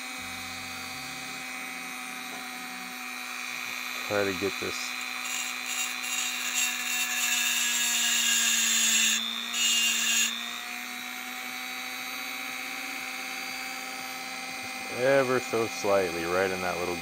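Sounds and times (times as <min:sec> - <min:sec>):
rotary tool grinding metal: 0:00.0 - 0:17.0
rotary tool motor whining: 0:00.0 - 0:17.0.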